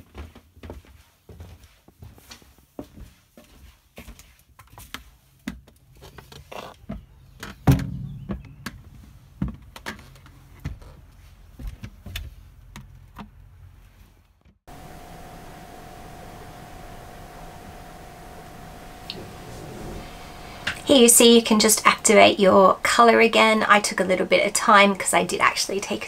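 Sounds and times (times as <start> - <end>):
loud thump: 7.7 - 9.0
steady hiss: 14.7 - 23.4
faint hum: 14.7 - 26.0.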